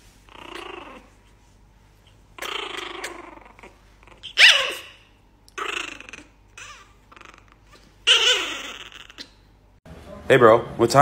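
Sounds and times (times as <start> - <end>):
puppy growling: 0.3 - 1.2, 2.3 - 9.5
puppy yelping: 0.3 - 1.2, 2.3 - 9.6.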